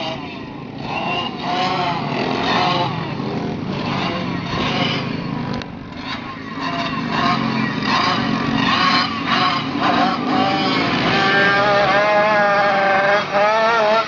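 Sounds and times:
race car engines: 0:00.0 - 0:14.0.

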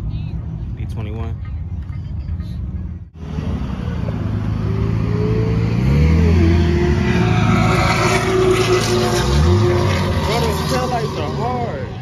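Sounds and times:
car engine pulling away: 0:03.2 - 0:12.0.

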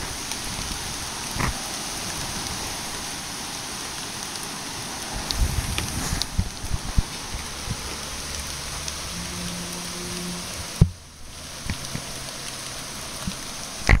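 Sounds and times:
rain on wet pavement: 0:00.0 - 0:14.0.

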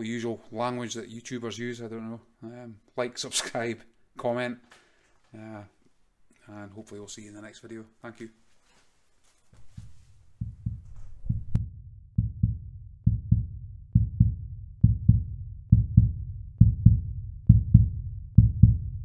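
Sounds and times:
heartbeat-like bass thumps: 0:10.4 - 0:19.0.

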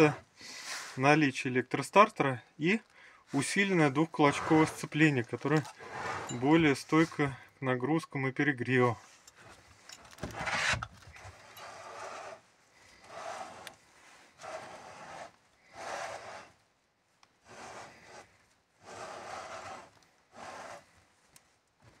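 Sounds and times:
soft rubbing and scraping: 0:02.7 - 0:07.4, 0:08.7 - 0:16.6, 0:17.4 - 0:22.0.

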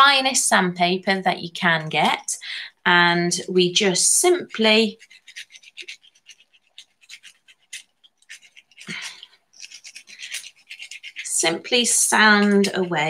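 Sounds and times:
sandpaper scratching clay: 0:03.6 - 0:13.0.

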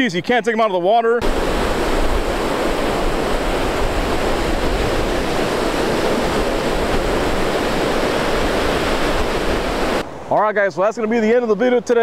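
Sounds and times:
wind on microphone: 0:01.2 - 0:10.3
ocean surf breaking: 0:01.2 - 0:12.0.

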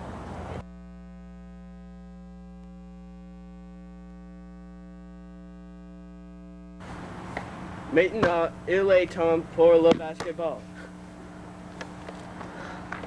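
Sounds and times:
electrical mains hum: 0:00.0 - 0:13.0
hissy background noise: 0:06.8 - 0:13.0.

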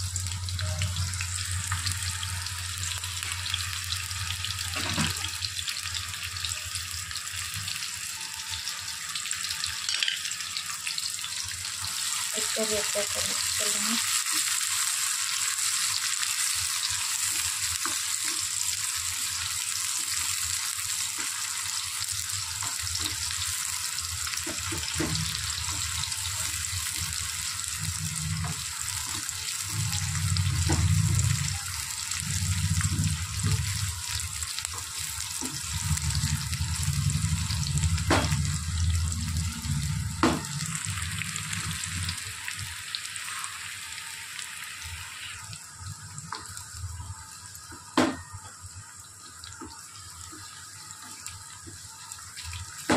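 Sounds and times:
onions sizzling in hot oil: 0:00.0 - 0:52.9
low rumble: 0:35.5 - 0:42.2.

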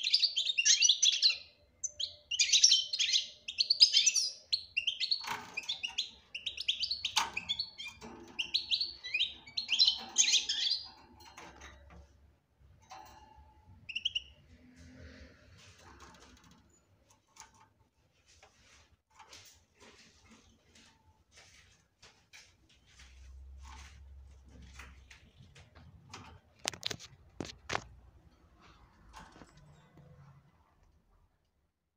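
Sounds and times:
finch twittering: 0:00.0 - 0:10.9.

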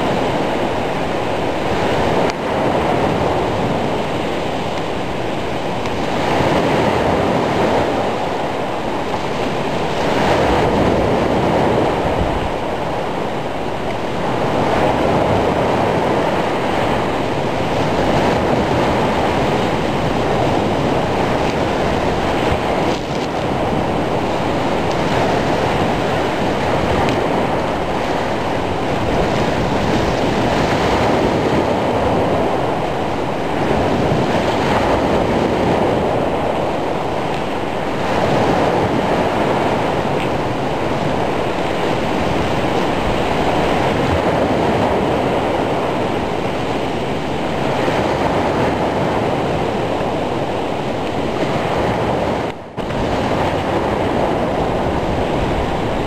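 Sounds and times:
waves breaking: 0:00.0 - 0:56.0
wind: 0:00.0 - 0:56.0.

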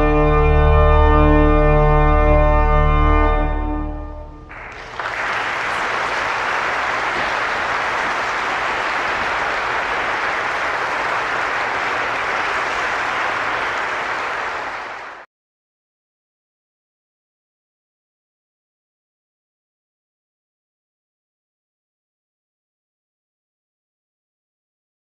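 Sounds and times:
pipe organ chord: 0:00.0 - 0:15.0
audience applauding: 0:04.5 - 0:15.3.

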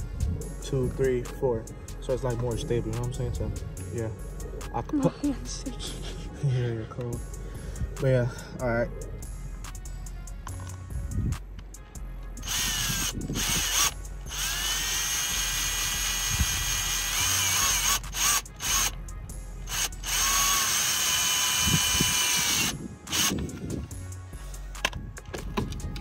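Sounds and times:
cordless drill driving screws: 0:12.4 - 0:19.0, 0:19.7 - 0:23.6.

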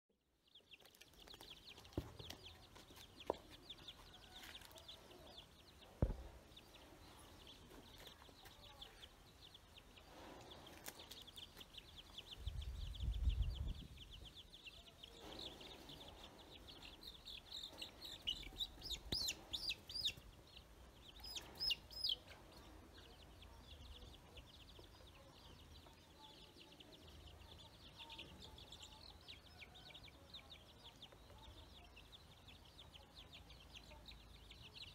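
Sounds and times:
ducklings peeping: 0:00.4 - 0:34.9
sharp knock: 0:06.0 - 0:06.4.

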